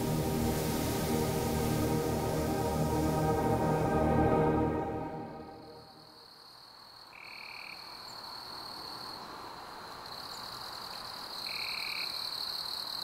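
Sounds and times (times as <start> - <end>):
crickets trilling: 5.7 - 13.0
frogs calling: 11.4 - 12.5.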